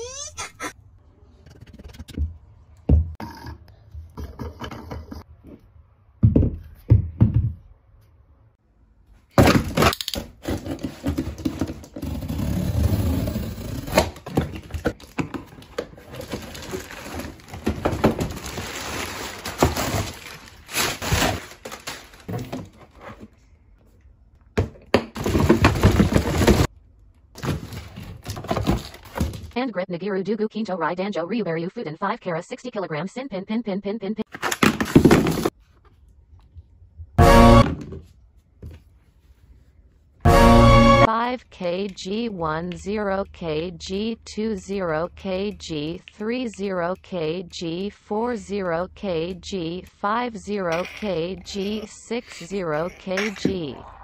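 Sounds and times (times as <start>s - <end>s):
boxes knocking on wooden floor: 6.2s - 7.6s, 10.4s - 12.2s, 24.6s - 26.7s, 34.6s - 35.5s
cardboard rustling and scraping: 10.3s - 23.4s, 25.2s - 26.7s, 34.4s - 36.0s.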